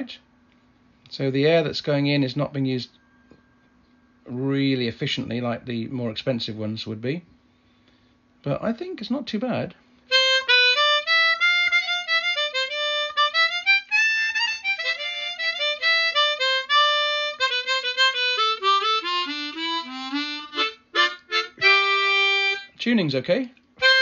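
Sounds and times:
harmonica melody: 10.1s - 22.8s, 23.8s - 24.0s.

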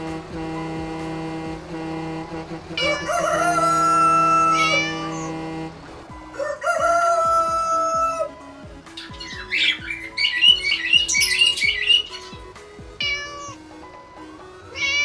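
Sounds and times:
rooster crowing: 2.8s - 5.4s, 6.3s - 8.4s.

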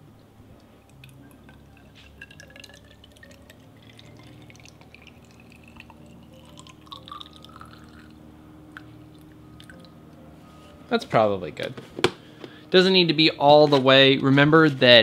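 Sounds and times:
faint rising tone: 0.0s - 11.6s
water dripping: 0.6s - 8.1s
water pouring into a tube: 0.9s - 8.1s.

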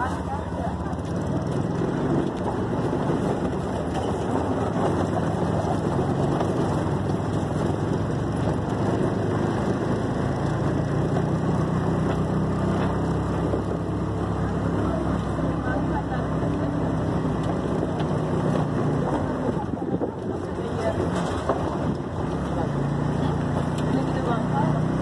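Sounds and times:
road noise: 0.0s - 25.0s
vehicle engine hum: 0.0s - 25.0s.

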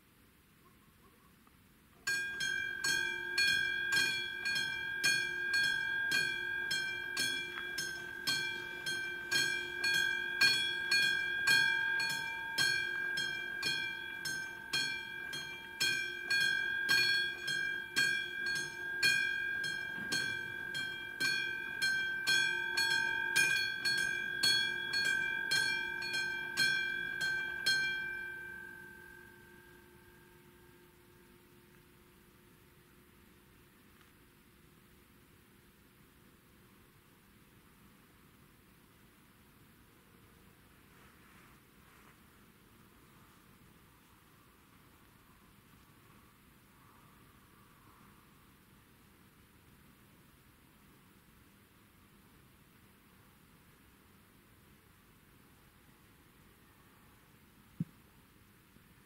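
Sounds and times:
level crossing warning bell: 2.1s - 31.7s.

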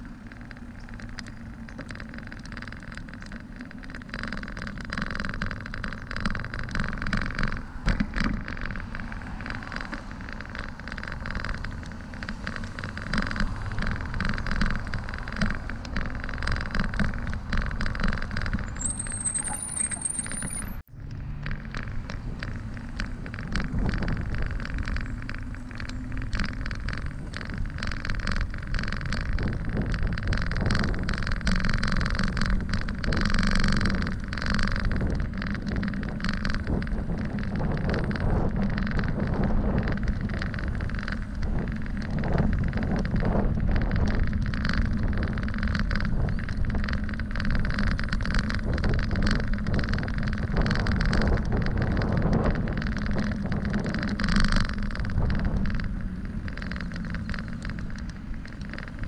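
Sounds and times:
bicycle tyre rumble: 0.0s - 59.0s
bike rattles and knocks: 0.0s - 59.0s
wind rush on microphone: 0.0s - 59.0s
car traffic passing: 7.5s - 27.3s.

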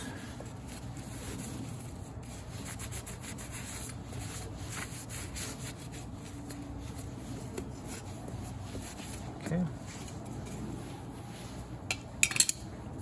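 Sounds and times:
cloth rag rubbing metal part: 0.2s - 12.2s.

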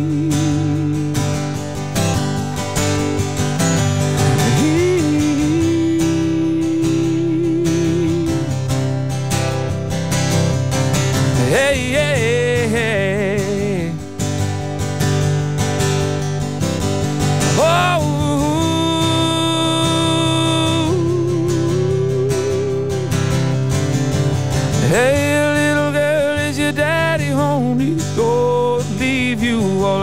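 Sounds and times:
man singing: 0.0s - 1.8s, 4.2s - 8.8s, 11.3s - 14.3s, 17.4s - 23.5s, 24.8s - 30.0s
acoustic guitar strumming: 0.0s - 30.0s.

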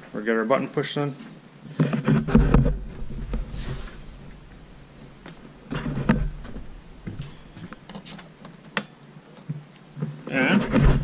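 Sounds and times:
rustling and knocking: 1.7s - 8.8s, 9.4s - 11.0s.

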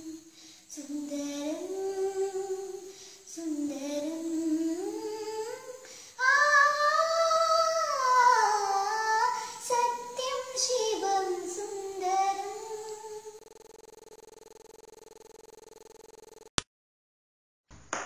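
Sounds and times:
girl singing unaccompanied: 0.0s - 13.4s.

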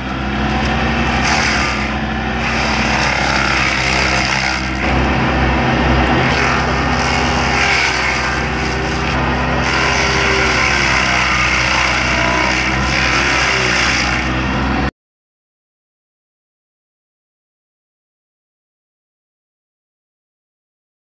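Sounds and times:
excavator engine under load: 0.0s - 14.9s
grinder wheel chewing wood: 0.0s - 14.9s.

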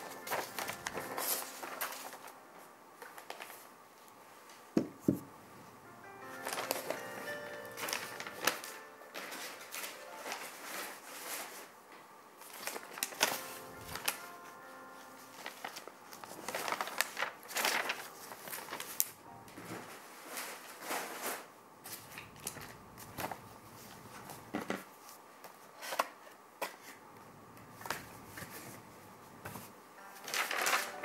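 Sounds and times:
handling clicks and crinkles: 0.0s - 2.4s, 6.3s - 11.7s, 12.4s - 14.6s, 15.2s - 23.4s, 30.0s - 31.0s.

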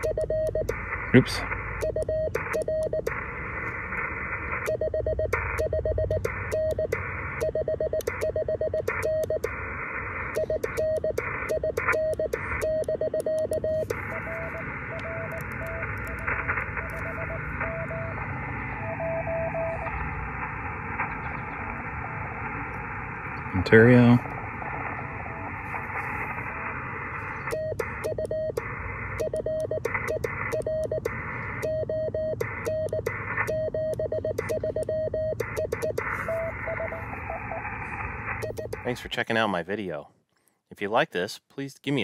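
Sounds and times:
morse code sidetone: 0.0s - 0.8s, 1.8s - 3.2s, 4.6s - 9.6s, 10.3s - 18.2s, 27.4s - 37.6s, 38.4s - 39.0s
radio receiver hiss: 0.0s - 39.9s.

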